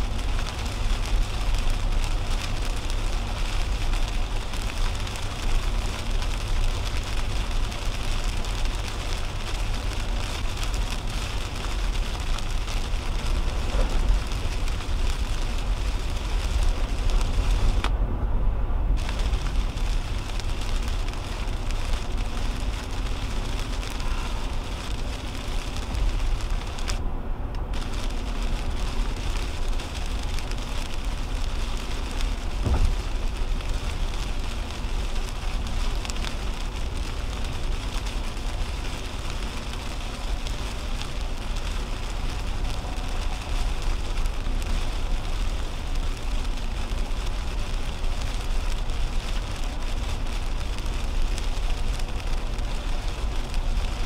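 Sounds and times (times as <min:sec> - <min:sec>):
rain hitting car: 0:00.0 - 0:17.9, 0:19.0 - 0:54.0
car road rumble: 0:00.0 - 0:54.0
sharp knock: 0:32.6 - 0:33.0.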